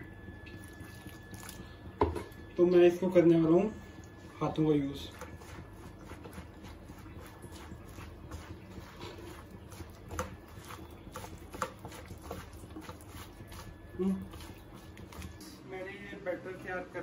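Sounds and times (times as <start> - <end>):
hand squelching wet batter: 4.3 - 15.6.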